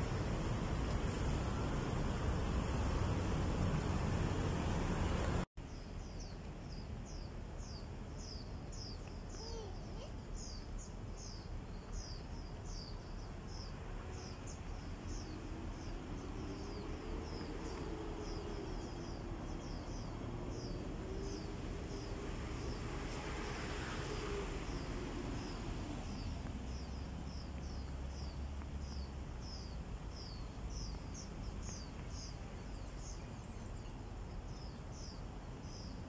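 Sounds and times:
bird chirping: 5.6 - 22.8.

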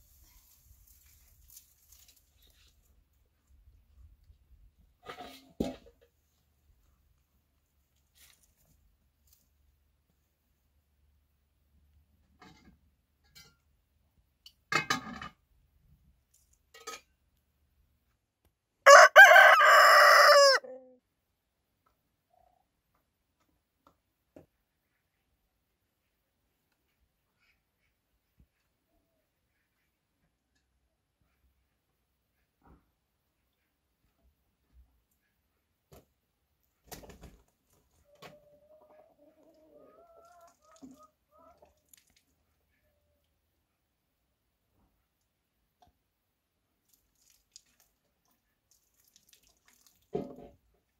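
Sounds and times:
chicken calling: 18.9 - 20.8
rooster crowing: 18.9 - 20.8.

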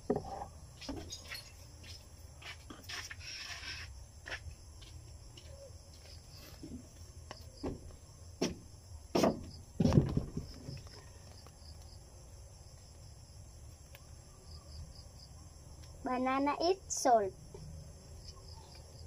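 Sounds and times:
sharp knocks: 8.4 - 10.5.

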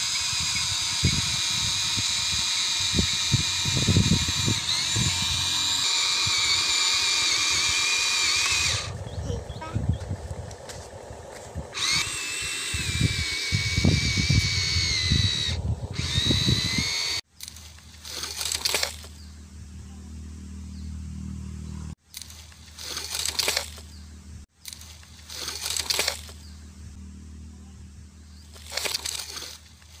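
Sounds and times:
electric motors whining: 0.0 - 17.2, 28.4 - 29.8
steady low hum: 0.0 - 17.2, 19.0 - 22.0, 23.7 - 24.5, 25.1 - 28.9
gravel crunching: 7.4 - 12.1.

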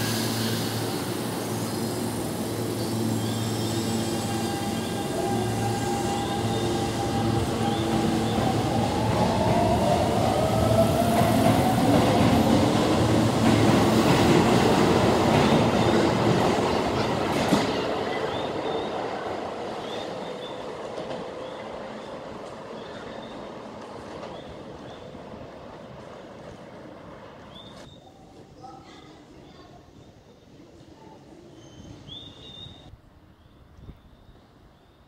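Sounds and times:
train wheels rumbling on rails: 0.0 - 27.9.

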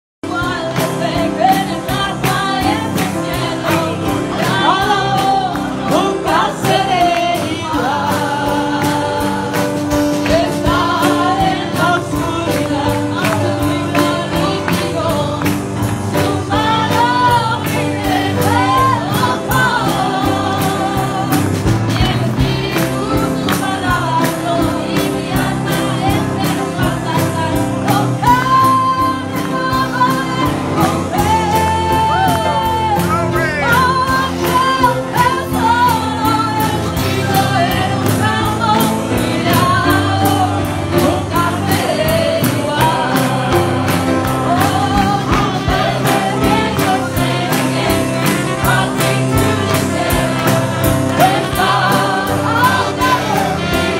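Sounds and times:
congregation singing a hymn: 0.2 - 53.9
steady beat: 32.4 - 34.5.

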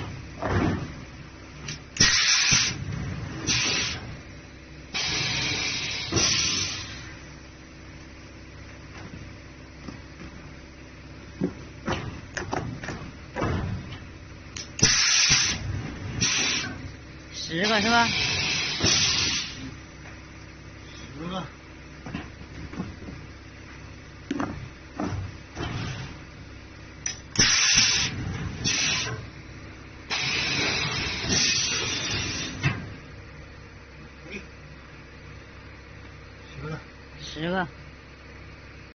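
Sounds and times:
loud hiss: 1.7 - 4.2, 4.9 - 7.2, 14.6 - 19.7, 27.3 - 29.3, 30.1 - 32.7.

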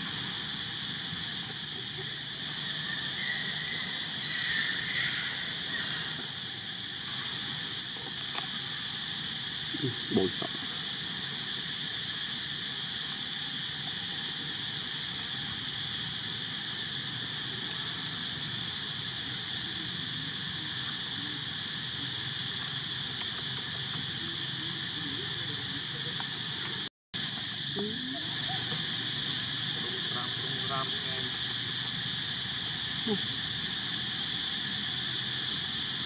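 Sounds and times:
insects chirring: 0.0 - 36.0.

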